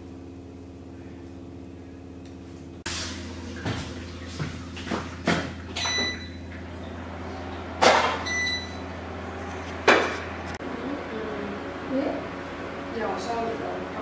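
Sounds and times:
steady low hum: 0.0s - 14.0s
cookware bumps and scrapes: 9.8s - 10.4s.

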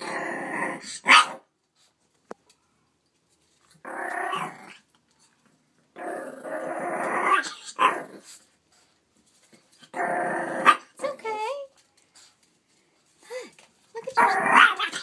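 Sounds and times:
puppy growling: 0.0s - 1.0s, 3.8s - 4.9s, 6.0s - 8.4s, 9.8s - 10.8s, 14.1s - 15.0s
puppy barking: 1.1s - 1.4s.

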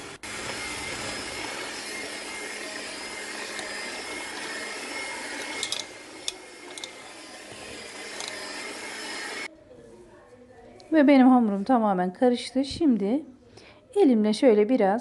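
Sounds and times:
electric hand mixer whining: 0.0s - 9.5s.

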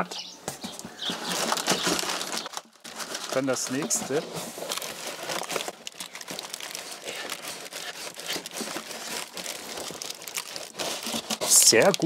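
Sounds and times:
paper and cardboard crinkling: 0.6s - 12.0s.

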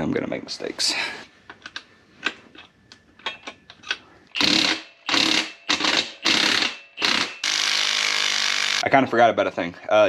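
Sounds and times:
ratchet wrench ratcheting: 4.3s - 8.8s.

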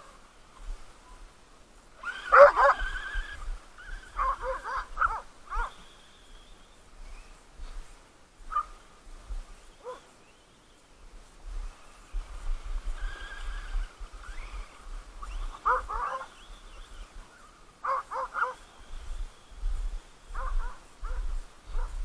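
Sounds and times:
dogs barking: 2.2s - 2.9s, 4.2s - 5.8s, 9.8s - 10.1s, 15.6s - 16.4s, 17.8s - 18.6s.

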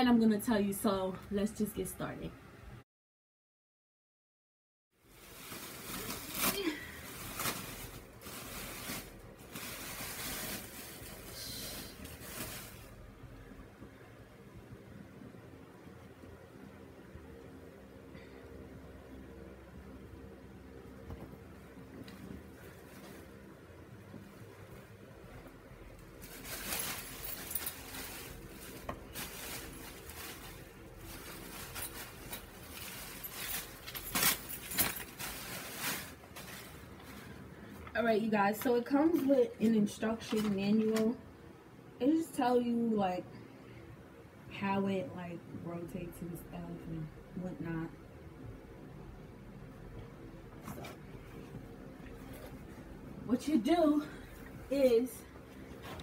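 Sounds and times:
plastic wrapping crinkling: 5.1s - 13.0s, 26.0s - 37.4s.

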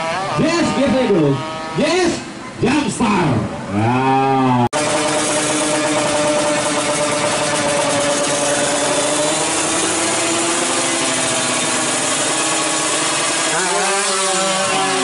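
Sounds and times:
motorcycle engine revving high: 3.7s - 15.0s.

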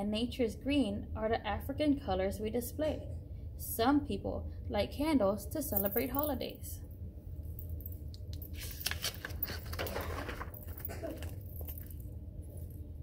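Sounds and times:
steady low hum: 0.0s - 13.0s
page turning rustle: 8.5s - 11.5s.

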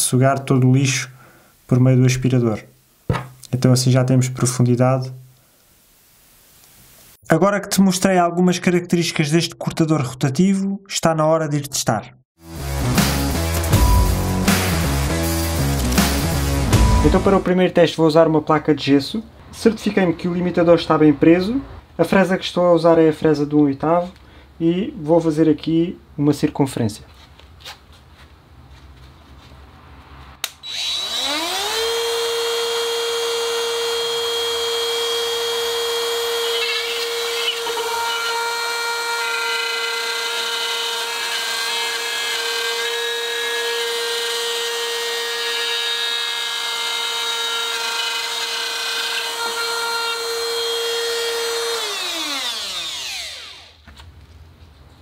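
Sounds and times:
bit cutting plasterboard: 30.6s - 53.8s
drywall cutter motor whine: 30.6s - 53.8s.

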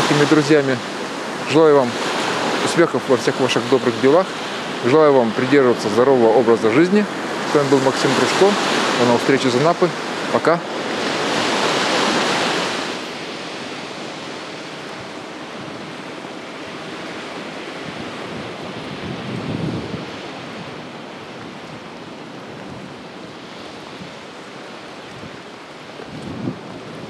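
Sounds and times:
surf washing onto beach: 0.0s - 27.0s
wind buffeting microphone: 0.0s - 27.0s.

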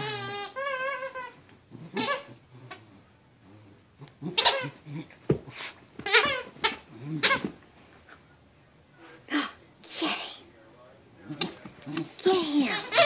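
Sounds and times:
squeaky toy squeaking: 0.0s - 2.4s, 4.3s - 4.8s, 6.0s - 7.5s, 12.6s - 13.0s.

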